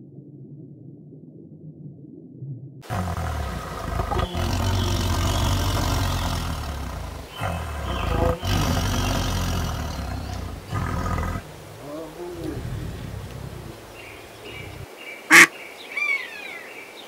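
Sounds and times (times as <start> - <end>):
tiger roaring: 2.8 - 14.8.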